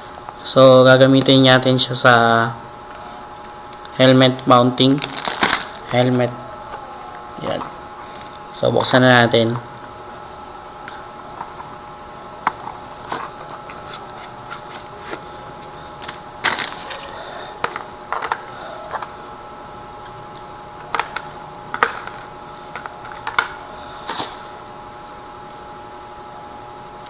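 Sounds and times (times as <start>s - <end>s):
plastic crinkling: 4.7s - 8.5s, 12.4s - 19.2s.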